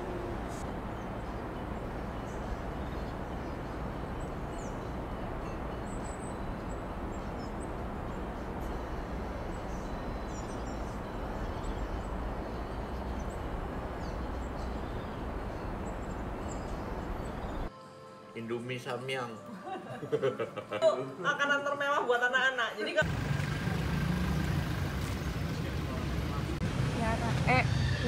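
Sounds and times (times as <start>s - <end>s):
rushing background noise: 0.0s - 17.9s, 23.0s - 28.0s.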